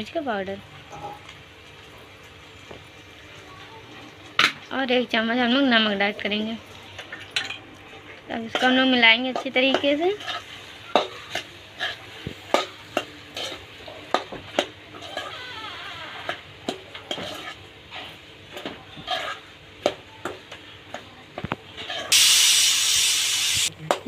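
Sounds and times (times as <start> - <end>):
oil sizzling: 0.0 - 20.6, 21.7 - 24.0
loud steady hiss: 22.1 - 23.7.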